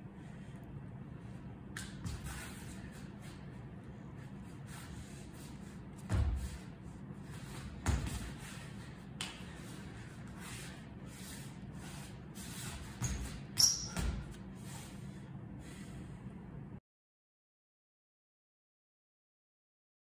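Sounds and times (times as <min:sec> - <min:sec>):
room hum: 0:00.0 - 0:16.8
sneakers thumping and squeaking: 0:06.0 - 0:06.7, 0:07.3 - 0:08.5, 0:12.8 - 0:14.5.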